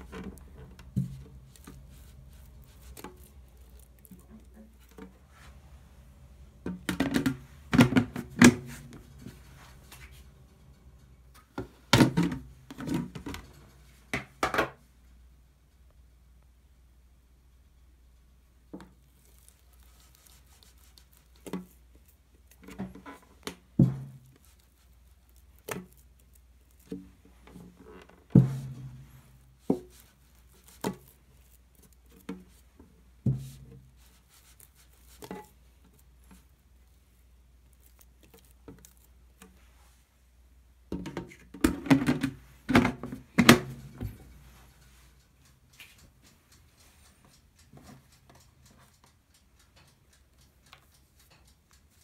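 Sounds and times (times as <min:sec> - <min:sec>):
wet dough slapping and squelching: 0:00.0 - 0:05.1, 0:18.9 - 0:27.5.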